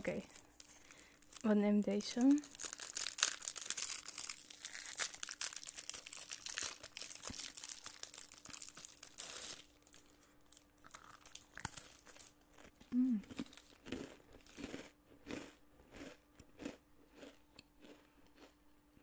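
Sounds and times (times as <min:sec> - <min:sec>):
wrapper crinkling and rustling: 0:00.0 - 0:12.4.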